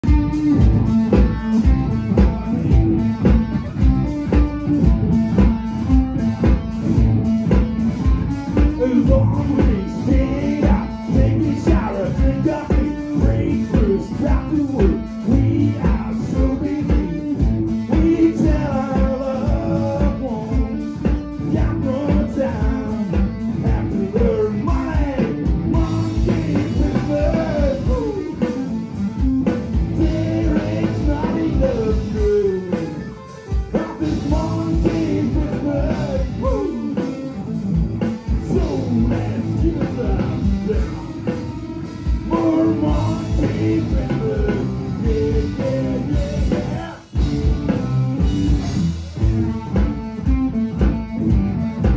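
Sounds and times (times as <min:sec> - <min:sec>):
drum kit: 0:00.0 - 0:51.9
electric guitar: 0:00.0 - 0:51.9
person singing: 0:08.5 - 0:50.2.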